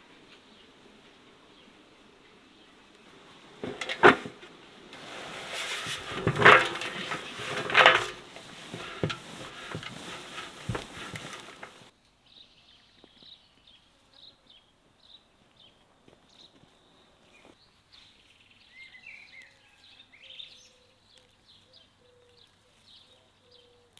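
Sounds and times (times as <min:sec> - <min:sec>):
burlap sack rustling: 0:03.5 - 0:11.9
stalks sliding into metal basin: 0:03.6 - 0:11.9
small bird chirping: 0:12.2 - 0:23.9.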